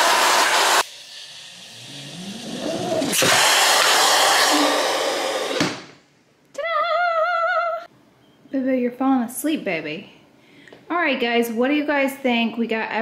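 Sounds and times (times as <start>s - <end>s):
vacuum motor whining: 0.0s - 0.8s, 1.8s - 5.9s.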